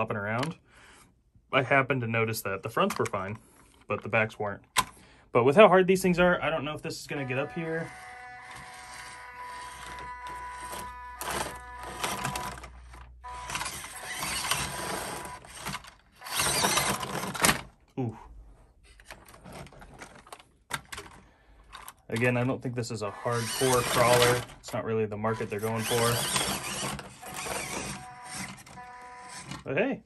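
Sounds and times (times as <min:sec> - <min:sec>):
small electric motor whining: 0:07.2 - 0:17.2, 0:23.1 - 0:24.5, 0:25.3 - 0:29.6.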